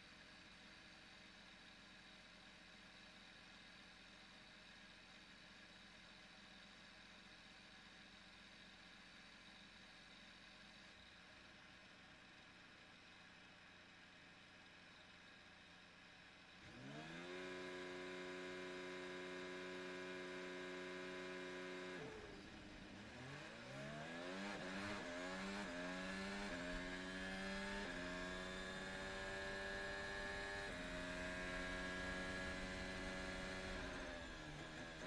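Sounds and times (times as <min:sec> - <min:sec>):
racing car engine revving: 0:23.0 - 0:35.0.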